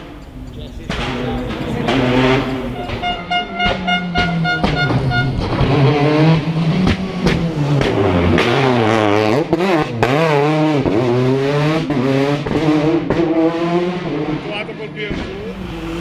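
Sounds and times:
rally car engine revving: 0.0 - 16.0
sharp exhaust pops: 0.1 - 6.0, 6.7 - 10.2.

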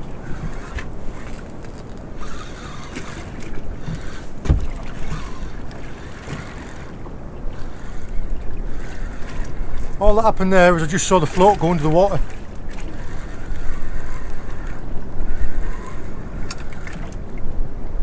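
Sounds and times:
sea noise: 0.0 - 18.0
wind: 0.0 - 18.0
low knock on boat: 4.4 - 4.9.

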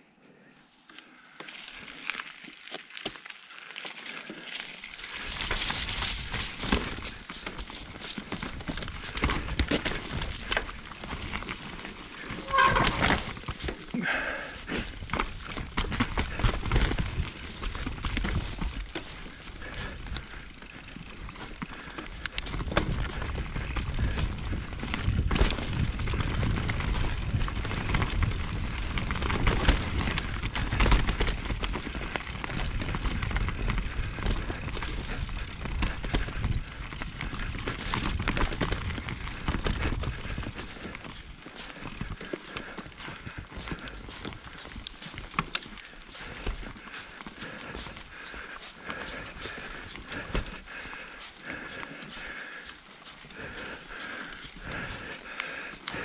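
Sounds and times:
bike tyres rolling over dirt: 0.9 - 56.0
bike clattering and knocking: 5.4 - 13.8
short pitched squeal: 12.4 - 13.1
wind on camera microphone: 22.6 - 31.6.

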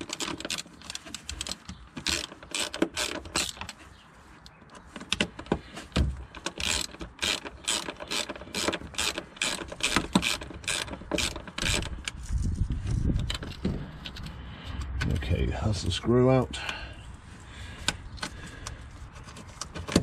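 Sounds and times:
socket ratchet clicking: 6.4 - 12.1.

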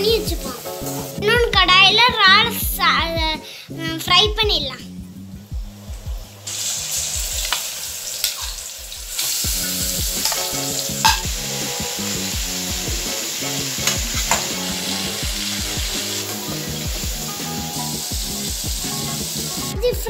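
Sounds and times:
prawns sizzling in hot oil: 0.0 - 1.9, 5.7 - 19.8.

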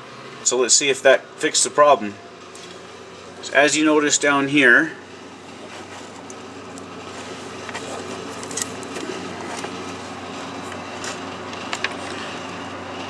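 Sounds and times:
steady low hum: 0.0 - 13.0
hands handling wiring: 5.6 - 12.3.

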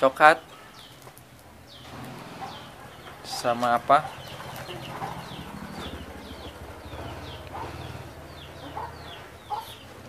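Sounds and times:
chickens clucking: 0.6 - 10.0.

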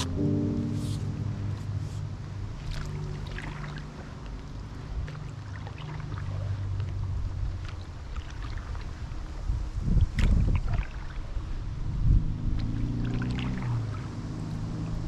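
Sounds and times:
steady low rumble: 0.0 - 5.6
paddle strokes in water: 0.8 - 11.8, 12.4 - 15.0
water splashing and trickling: 1.7 - 15.0.

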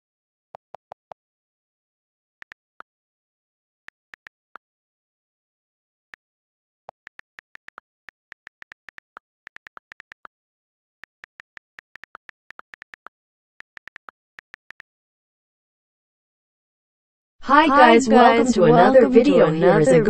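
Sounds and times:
phone keyboard clicks: 7.1 - 10.3, 11.1 - 14.8.

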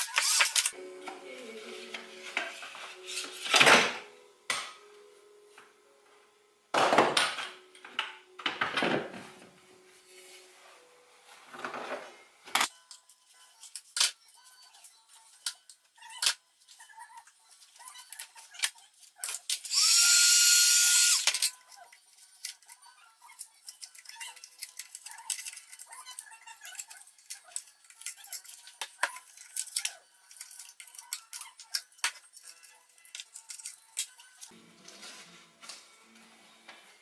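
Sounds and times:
power tool whining: 0.0 - 0.7, 19.7 - 21.3
handling scrapes: 34.5 - 37.0.

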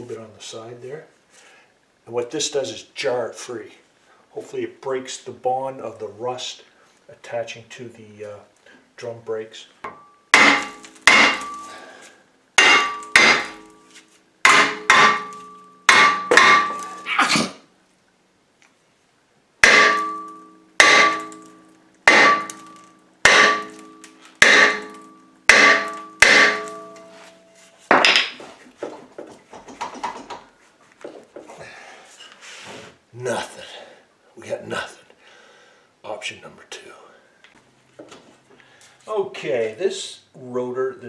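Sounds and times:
hammer striking metal rotor: 9.9 - 11.8, 12.6 - 13.8, 14.4 - 17.1, 19.6 - 27.1
rotor ringing: 9.9 - 12.0, 12.6 - 17.1, 19.6 - 27.6.

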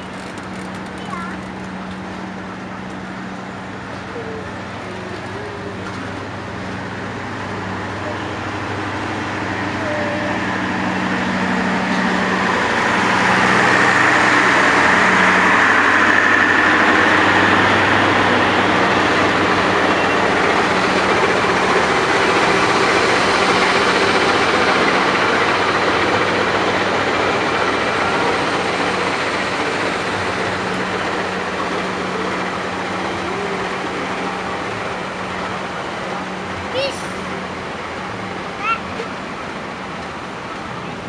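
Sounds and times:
locomotive engine drone: 0.0 - 41.0
wheels rumbling on rails: 0.0 - 41.0.

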